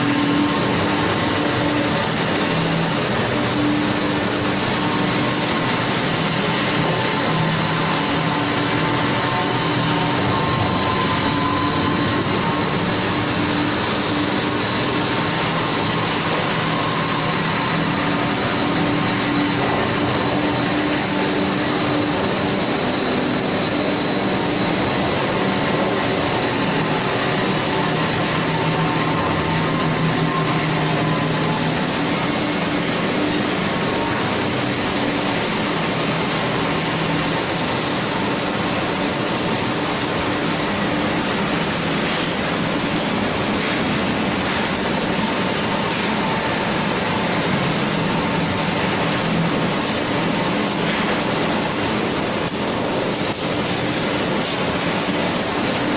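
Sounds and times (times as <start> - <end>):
machinery din: 0.0 - 34.6.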